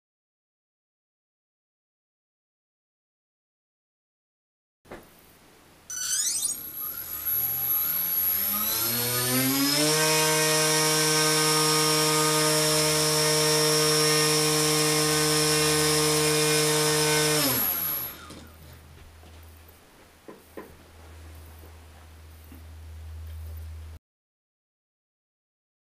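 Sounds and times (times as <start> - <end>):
electric motor propeller whine: 5.9 - 18.6.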